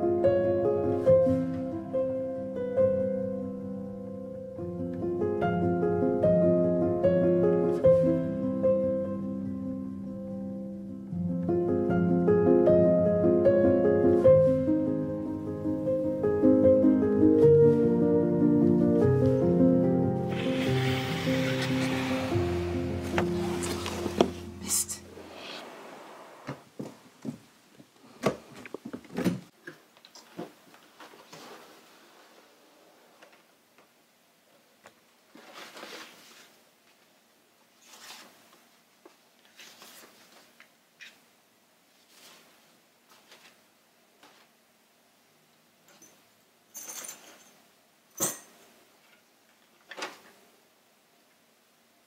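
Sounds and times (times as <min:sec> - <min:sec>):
paper rustling: 0:20.3 - 0:24.6, 0:35.3 - 0:36.6, 0:37.8 - 0:38.6, 0:39.4 - 0:41.2, 0:42.0 - 0:43.6.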